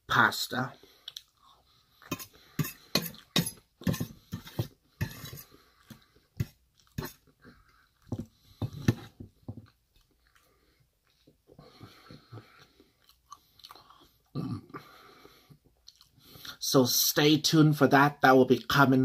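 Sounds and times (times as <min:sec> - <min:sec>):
chewing food: 0:06.7 - 0:08.1, 0:09.6 - 0:11.4, 0:12.2 - 0:14.3, 0:15.7 - 0:16.4.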